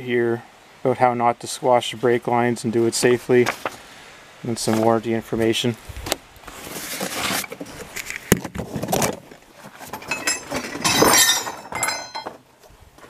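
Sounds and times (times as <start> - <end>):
metal hardware clinking: 9.8 - 12.4.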